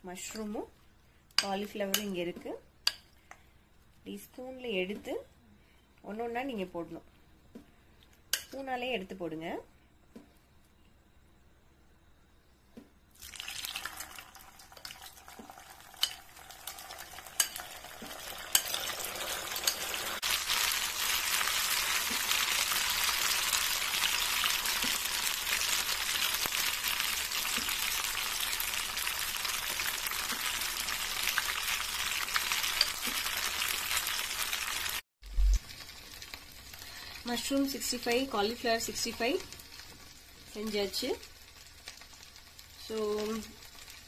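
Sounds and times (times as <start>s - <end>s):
food deep frying in oil: 13.1s - 44.0s.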